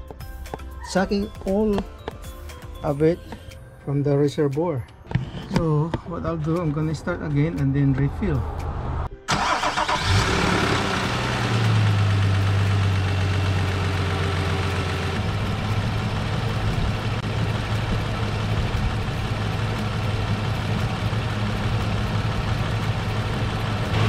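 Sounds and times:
car engine idling: 9.3s - 24.0s.

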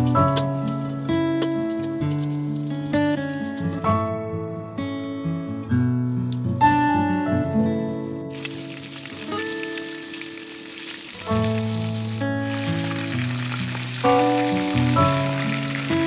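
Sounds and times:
background music: 0.0s - 5.6s, 6.3s - 16.0s
chicken sizzling in hot oil: 8.3s - 16.0s.

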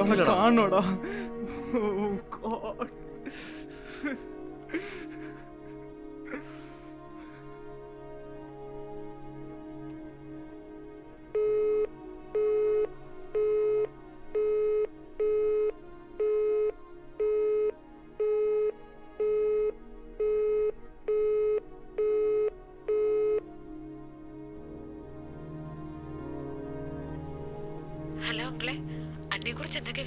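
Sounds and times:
soft sustained music: 0.0s - 30.0s
telephone busy tone beeps: 11.4s - 23.4s.

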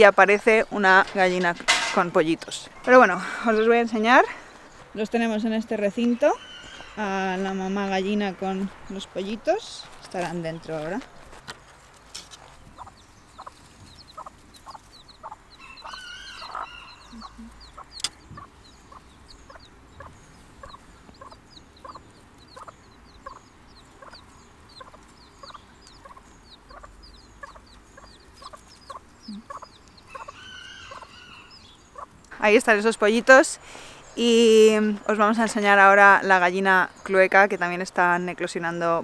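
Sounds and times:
hen clucking: 0.0s - 11.0s, 12.4s - 33.4s
chicks peeping: 0.0s - 33.2s
hen drawn-out call: 15.2s - 17.8s, 29.3s - 32.1s.

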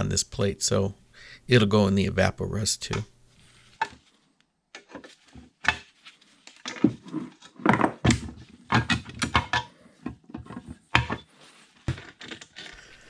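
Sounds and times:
metal parts knocking and scraping: 6.5s - 13.0s.

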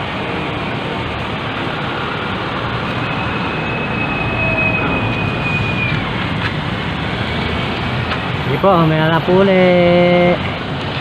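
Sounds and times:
high steady whine: 0.0s - 8.6s
street traffic noise: 0.0s - 11.0s.

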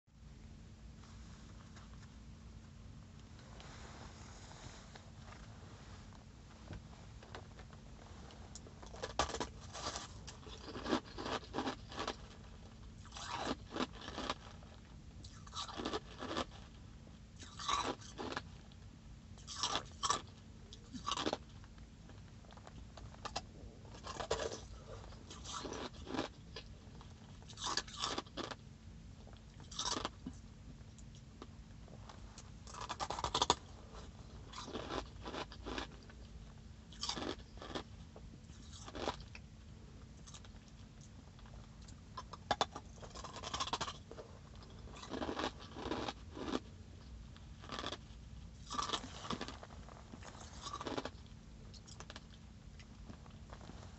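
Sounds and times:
ice being chewed: 8.5s - 16.8s, 17.4s - 18.8s, 19.4s - 28.6s, 29.2s - 31.2s, 32.1s - 39.4s, 40.2s - 53.9s.

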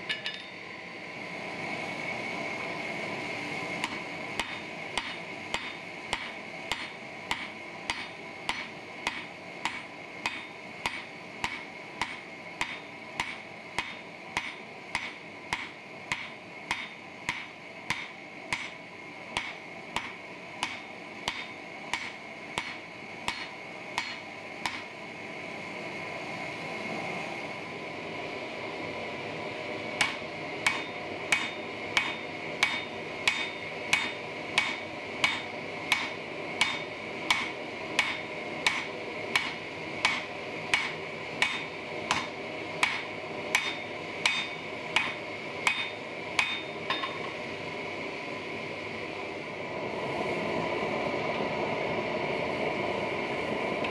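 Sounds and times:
hammer striking metal on anvil: 0.0s - 0.6s, 3.8s - 18.8s, 19.4s - 24.9s, 30.0s - 47.4s
forge running: 0.0s - 53.9s.

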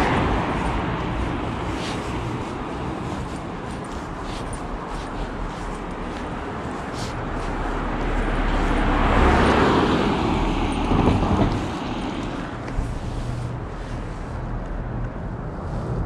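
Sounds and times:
car driving past: 7.2s - 12.6s.

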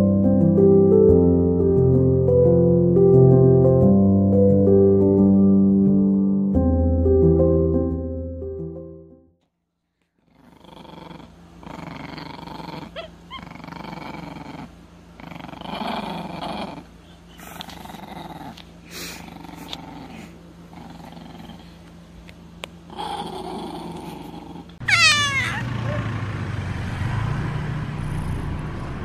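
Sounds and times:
leopard growling: 10.3s - 21.8s, 22.9s - 26.2s.

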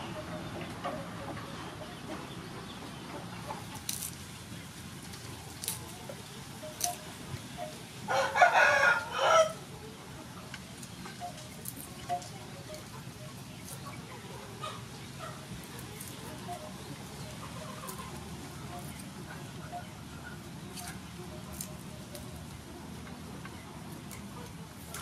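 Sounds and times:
garlic peeling clicks: 3.8s - 4.2s
rooster crowing: 8.1s - 9.6s.

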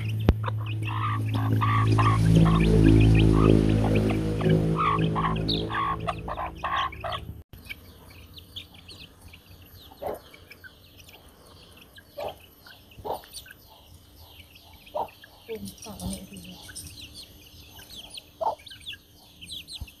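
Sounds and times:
chickens clucking: 0.0s - 20.0s
chicks peeping: 0.0s - 20.0s
background music: 0.4s - 7.4s.

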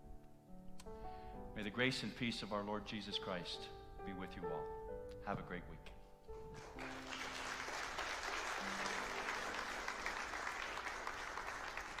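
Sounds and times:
soft instrumental music: 0.0s - 12.0s
congregation applauding: 6.5s - 12.0s.

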